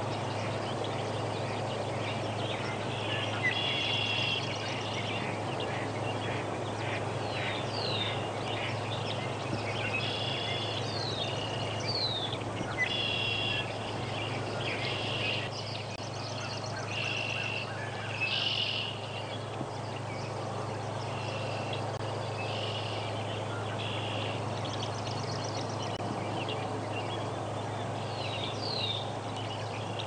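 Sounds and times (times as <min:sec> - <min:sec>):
frogs calling in chorus: 0:02.1 - 0:08.8, 0:12.8 - 0:13.8.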